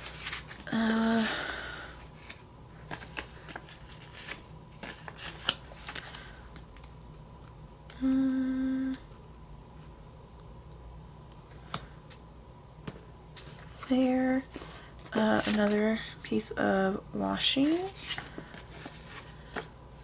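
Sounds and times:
person humming: 0.7 - 1.7, 7.9 - 9.1.

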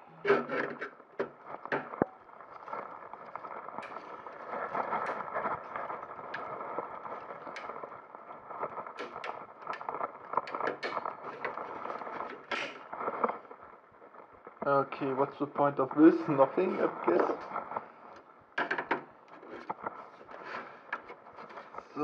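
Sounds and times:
plastic cover creaking and clicking: 0.2 - 14.6, 15.6 - 22.0.

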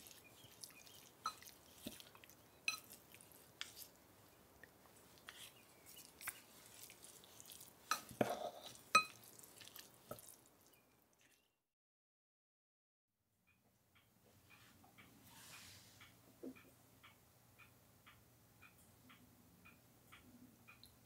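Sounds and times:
wet stirring of greens: 0.0 - 11.4.

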